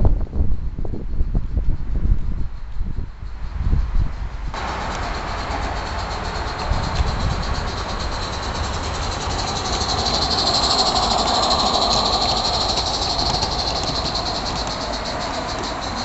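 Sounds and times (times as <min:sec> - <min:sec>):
steam hissing: 0:04.6 - 0:16.0
steam locomotive chuffing: 0:04.6 - 0:16.0.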